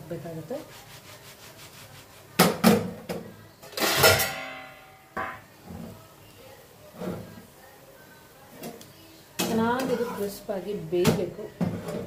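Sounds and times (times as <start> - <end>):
frying pan knocking on metal: 4.0 - 5.5.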